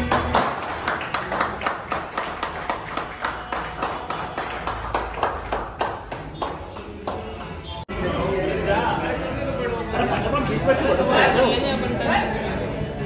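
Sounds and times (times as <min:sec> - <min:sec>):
group clapping in time: 0:00.0 - 0:07.8.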